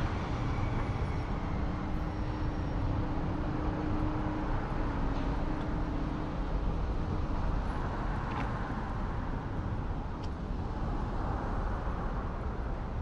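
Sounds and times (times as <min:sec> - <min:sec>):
rumble of cars going by: 0:00.0 - 0:13.0.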